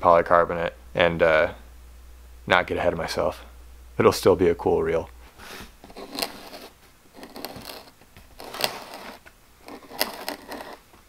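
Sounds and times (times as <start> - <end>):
metal scribe scratching plastic: 5.9 - 11.0.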